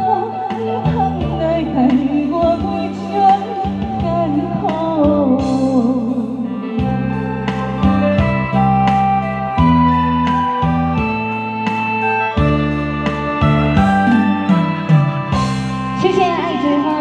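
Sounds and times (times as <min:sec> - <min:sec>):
woman singing into microphone: 0:00.0 - 0:07.4, 0:13.9 - 0:14.9, 0:15.8 - 0:17.0
backing music with bass and keyboard: 0:00.0 - 0:17.0.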